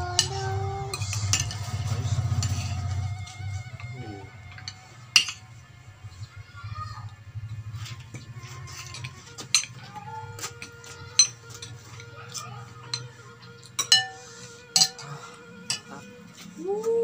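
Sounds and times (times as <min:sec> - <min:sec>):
spoons clinking against glass: 0:04.6 - 0:05.4, 0:08.8 - 0:11.8, 0:12.8 - 0:14.2, 0:14.8 - 0:15.1, 0:15.7 - 0:16.0.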